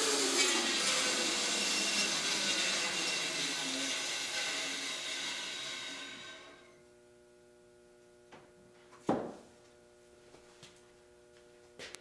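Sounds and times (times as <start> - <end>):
bandsaw coasting to stop: 0.0 - 6.7.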